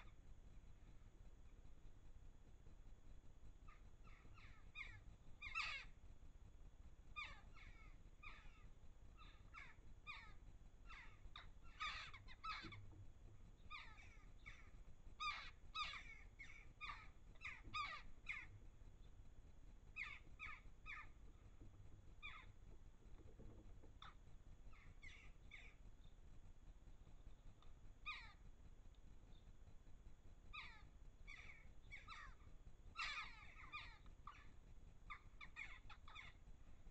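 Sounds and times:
jackdaws calling: 0.0s - 0.2s, 3.6s - 6.0s, 7.1s - 18.7s, 19.9s - 22.6s, 23.8s - 25.9s, 27.3s - 28.4s, 30.5s - 36.9s.

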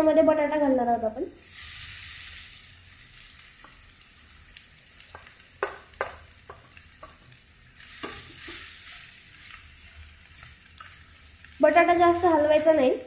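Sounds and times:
oil sizzling: 0.0s - 13.0s
spatula tapping pan: 4.6s - 11.0s.

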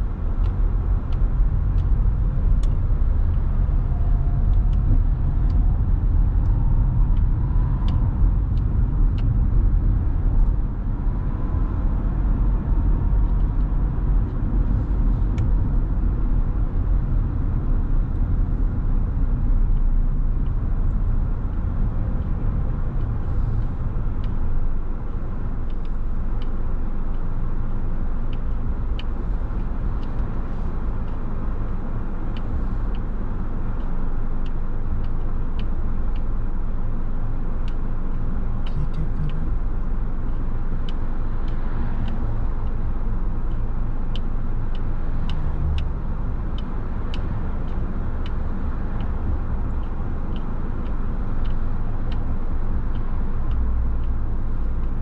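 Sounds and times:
tyres and engine rumble: 0.0s - 55.0s
faint ticks: 19.5s - 55.0s.

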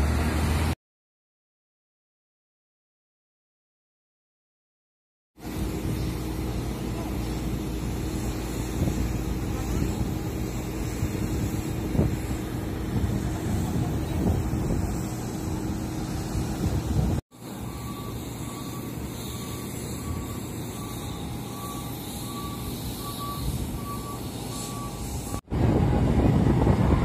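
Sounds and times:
low engine rumble: 5.4s - 27.0s
reversing alarm beeps: 17.4s - 25.5s.

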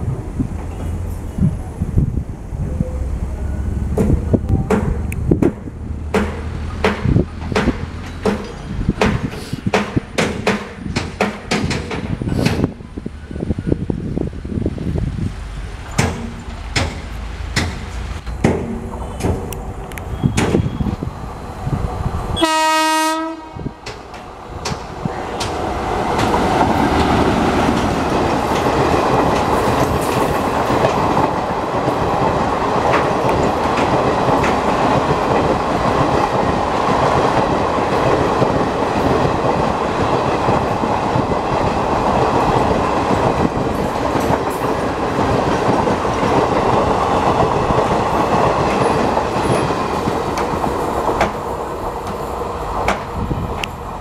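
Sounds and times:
wheels clickety-clack on rails: 0.0s - 2.0s, 2.6s - 14.0s, 14.7s - 21.0s, 23.2s - 54.0s
train coaches rumbling past: 0.0s - 54.0s
train horn blast: 22.4s - 23.8s.

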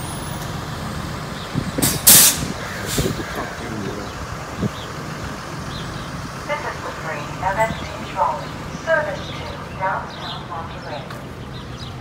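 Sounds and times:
vehicle engine rumble: 0.0s - 12.0s
short air hiss: 1.8s - 3.2s.

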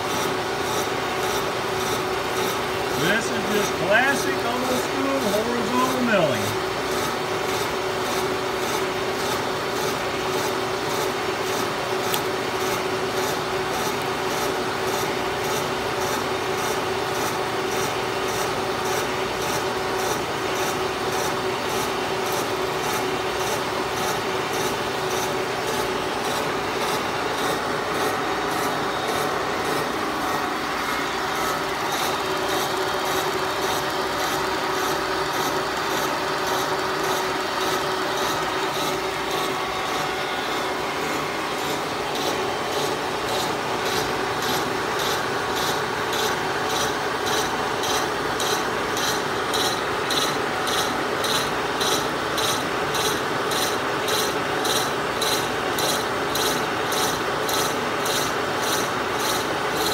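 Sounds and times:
steady hum: 0.0s - 7.7s, 23.5s - 46.0s
milling cutter rasping through plastic: 0.0s - 59.9s.

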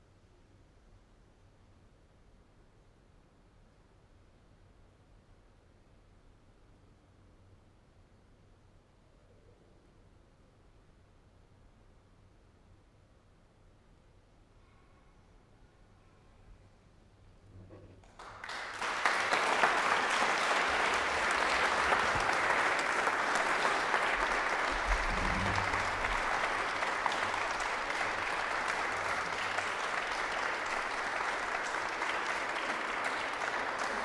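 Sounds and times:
audience applauding: 18.0s - 34.0s.

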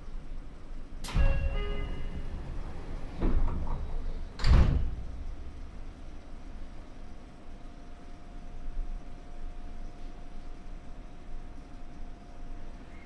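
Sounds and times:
train doors shutting with thuds: 1.0s - 5.7s.

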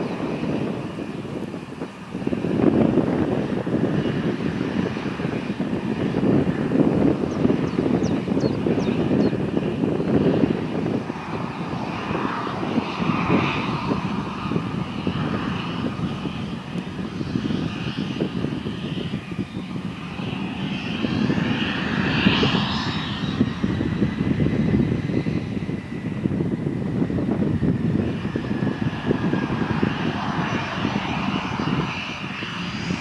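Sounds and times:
jet engine whine: 0.0s - 33.0s.

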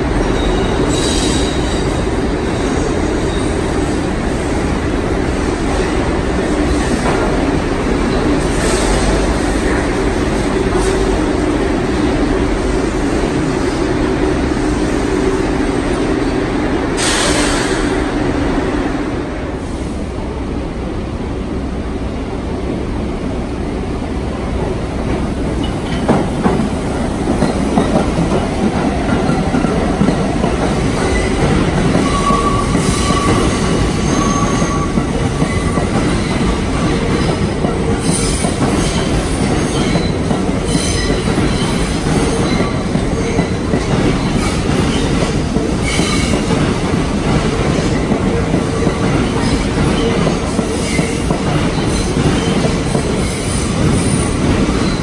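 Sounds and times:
subway train wheels rumbling: 0.0s - 55.0s
high-pitched wheel squeals: 32.0s - 35.0s.

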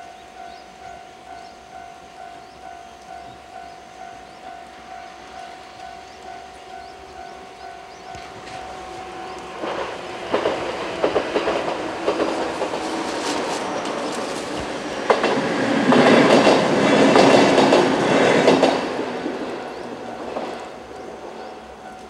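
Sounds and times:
electric train passing: 0.0s - 22.0s
wheels clicking over rail joints: 7.9s - 22.0s.

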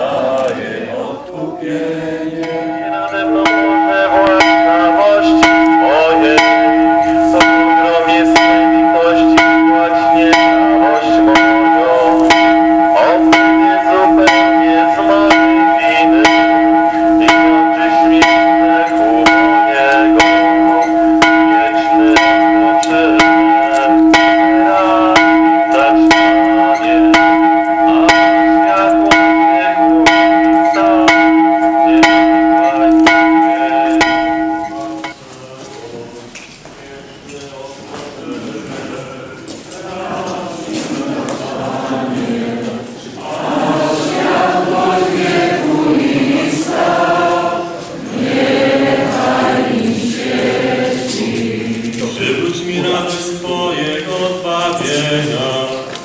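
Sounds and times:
church bell tolling: 2.3s - 35.2s.

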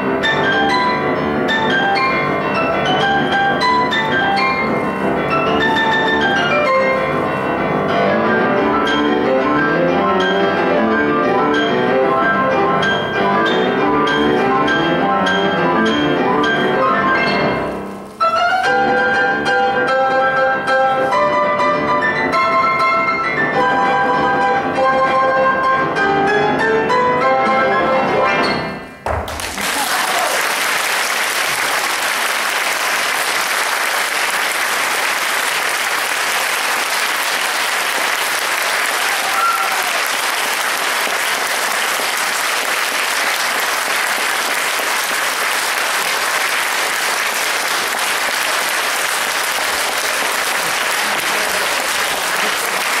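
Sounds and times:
piano notes: 0.0s - 29.5s
audience applauding: 29.1s - 53.0s.

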